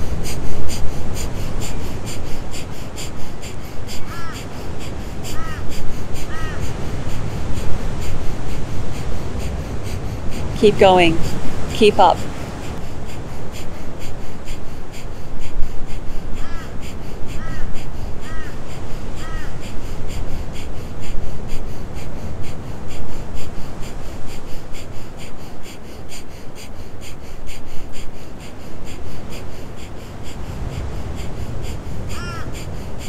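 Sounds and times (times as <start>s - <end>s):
bird calling: 0.0s - 20.8s, 27.6s - 33.0s.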